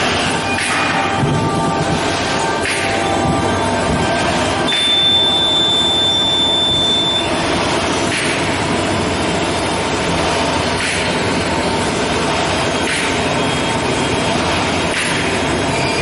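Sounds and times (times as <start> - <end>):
bag sealing machine running: 0.0 - 16.0
thin high steady tone: 3.1 - 7.4.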